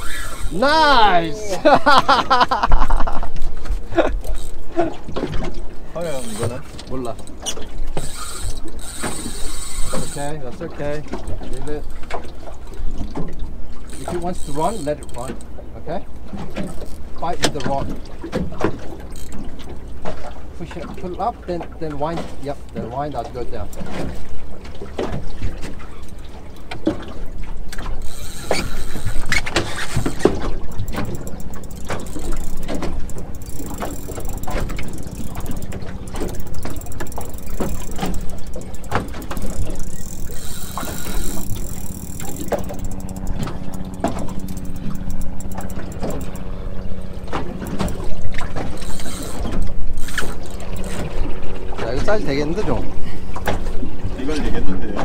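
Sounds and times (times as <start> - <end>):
fishing reel winding: 0.0 - 1.0, 4.2 - 4.6, 6.0 - 10.4, 13.8 - 15.5, 16.7 - 17.1, 19.0 - 19.5, 28.0 - 46.5, 48.7 - 51.2
water splashing: 0.0 - 55.0.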